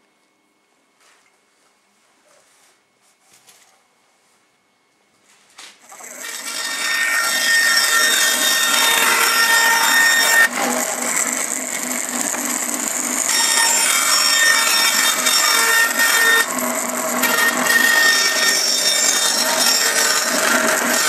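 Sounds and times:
bandsaw cutting wood: 5.9s - 21.0s.

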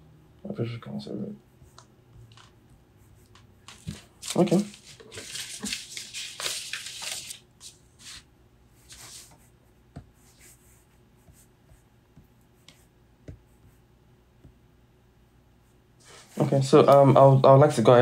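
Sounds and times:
pen scratching on paper: 10.2s - 11.9s.

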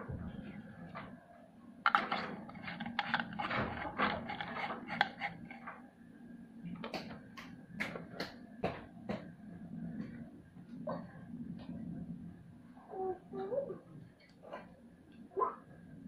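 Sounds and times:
plastic clicking and clattering: 1.9s - 5.7s.

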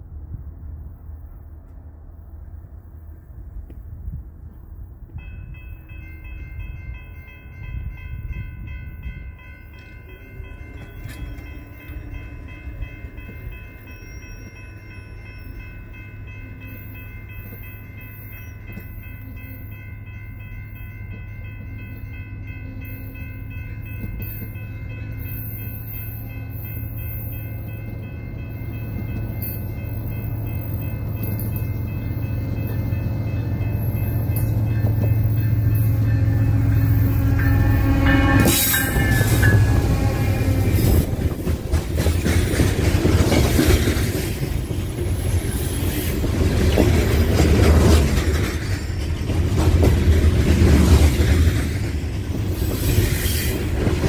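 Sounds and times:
high ringing tones: 5.2s - 41.2s
diesel locomotive rumble: 21.0s - 54.0s.

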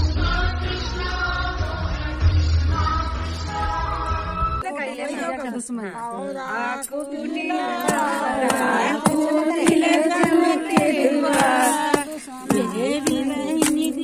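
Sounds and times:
women singing a chant: 3.6s - 14.0s.

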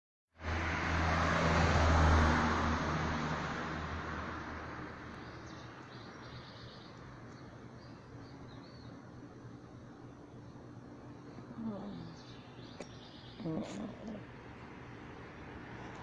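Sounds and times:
vehicle passing: 0.4s - 6.7s, 13.4s - 16.0s
faint bird chirps: 10.4s - 14.2s.

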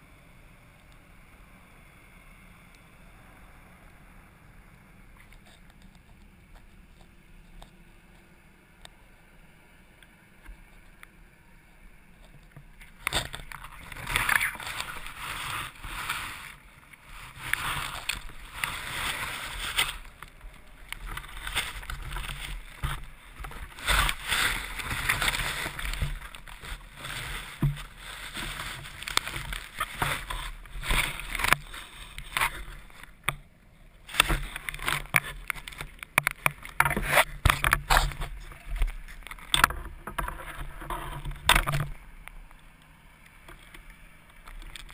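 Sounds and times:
water sloshing and bubbling: 10.2s - 44.9s
irregular clicks and knocks: 34.1s - 42.6s.

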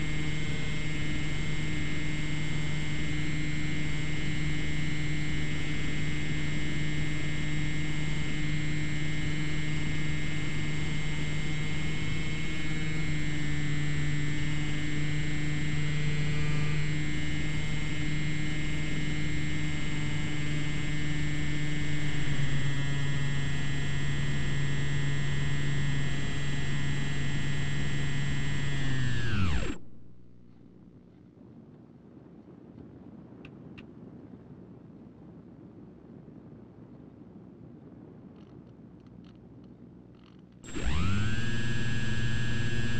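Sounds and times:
model plane motor whining: 0.0s - 30.5s, 40.6s - 42.9s.

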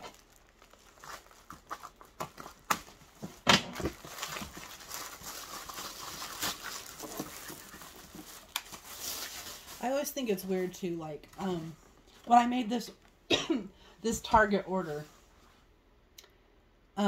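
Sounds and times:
plastic wrap crinkling and tearing: 0.0s - 10.7s.

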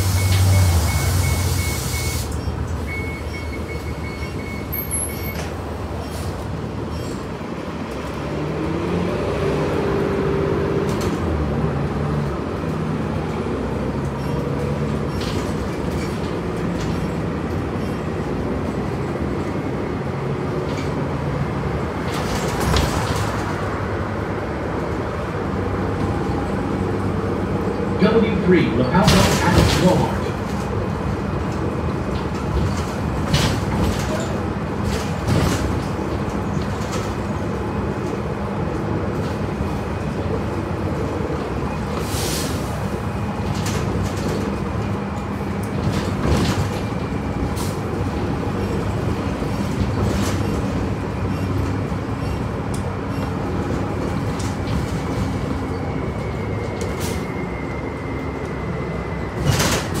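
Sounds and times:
bus engine drone: 0.0s - 60.0s
rattles and knocks of bus fittings: 13.9s - 18.8s, 21.8s - 23.7s, 29.0s - 38.2s, 43.2s - 55.9s, 59.4s - 60.0s.

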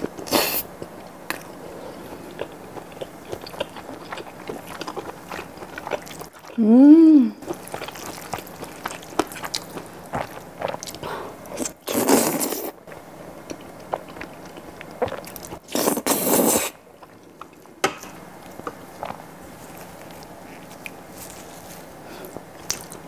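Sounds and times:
wet chewing clicks: 7.4s - 17.6s, 22.6s - 23.0s
slurping noodles: 11.6s - 12.8s, 15.1s - 16.8s.

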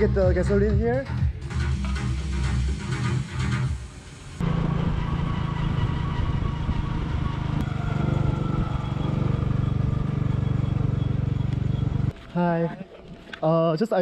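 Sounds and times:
motorcycle engine riding: 4.4s - 13.4s.

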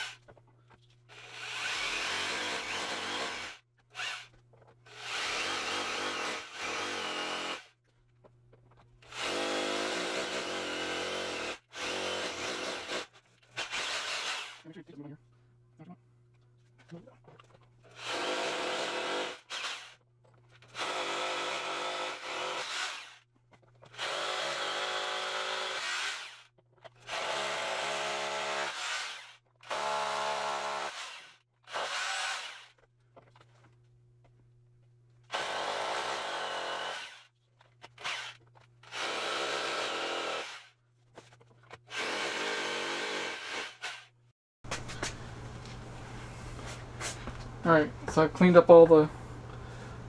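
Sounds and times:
hammer drill boring into concrete: 1.1s - 7.7s, 9.1s - 14.6s, 17.9s - 20.0s, 20.7s - 23.2s, 23.9s - 32.8s, 35.3s - 37.3s, 37.9s - 40.8s.

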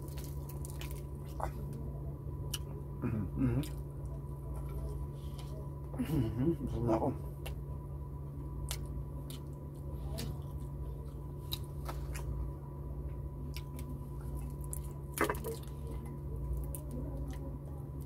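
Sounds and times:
chewing: 0.0s - 1.8s, 8.6s - 12.5s, 13.1s - 18.0s
steady low hum: 0.0s - 18.0s.

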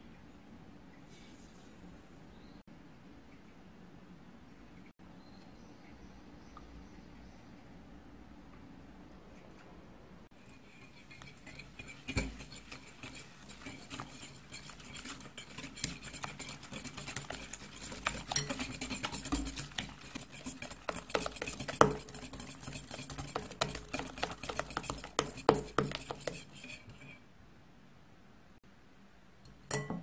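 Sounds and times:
whisk swishing in bowl: 10.3s - 27.2s
whisk clinking against glass: 10.4s - 27.1s, 29.7s - 30.0s.

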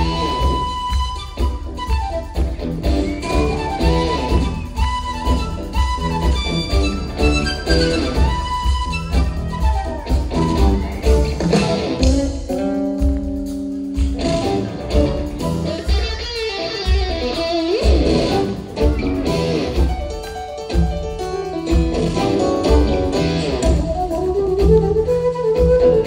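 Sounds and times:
bass: 0.0s - 16.0s, 17.8s - 20.0s, 21.8s - 26.0s
drum beat: 0.0s - 26.0s
electric guitar lead: 0.0s - 26.0s.

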